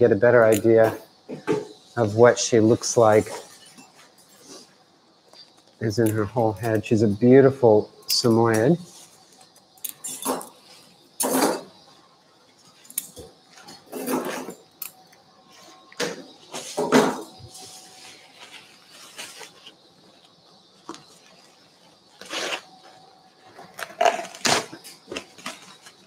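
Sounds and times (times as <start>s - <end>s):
drapes rustling: 17.6s - 23.0s.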